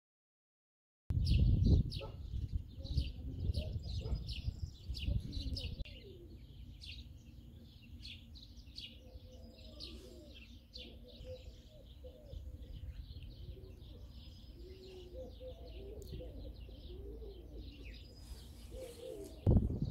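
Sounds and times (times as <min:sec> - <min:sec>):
small birds chirping: 0:01.1 - 0:19.9
pigeon cooing: 0:02.8 - 0:06.5, 0:08.9 - 0:19.5.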